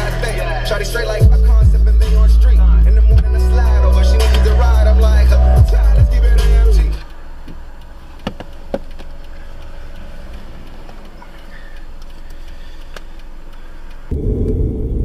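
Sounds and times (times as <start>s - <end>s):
music: 0.0s - 7.0s
car engine and road noise: 0.0s - 15.0s
faint clicks: 7.0s - 14.1s.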